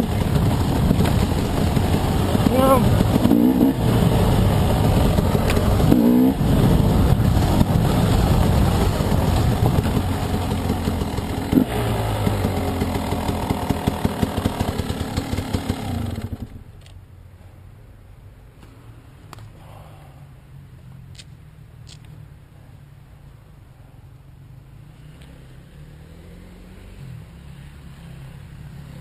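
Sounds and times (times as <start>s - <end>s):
dirt bike engine revving: 0.0s - 16.6s.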